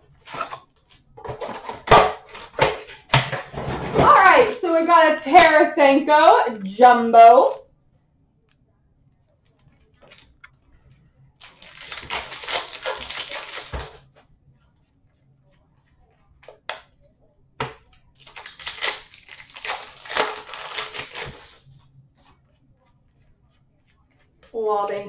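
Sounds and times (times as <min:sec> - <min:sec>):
wrappers tearing and crinkling: 0:09.5 - 0:10.4, 0:11.4 - 0:14.1, 0:18.2 - 0:21.6.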